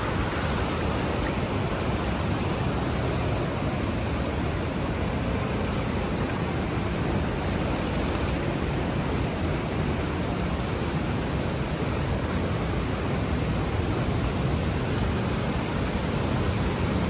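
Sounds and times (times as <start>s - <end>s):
waterfall roaring: 0.0s - 17.0s.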